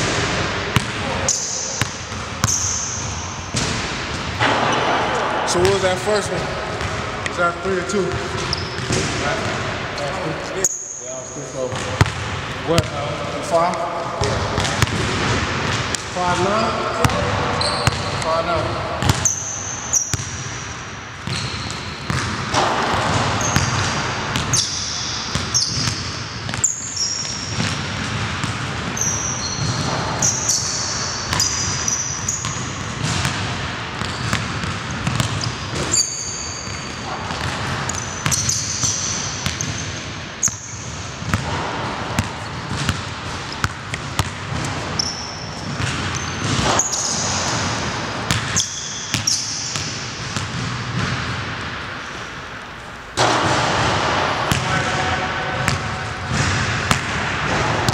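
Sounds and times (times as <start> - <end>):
sneakers squeaking: 0.0 - 57.9
basketball dribbling on wood floor: 34.0 - 35.5.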